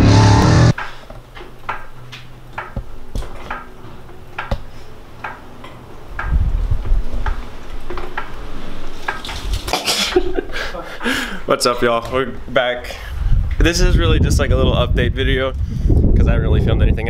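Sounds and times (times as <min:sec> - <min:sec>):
low rumbling bumps: 0:05.9 - 0:09.6, 0:11.8 - 0:17.0.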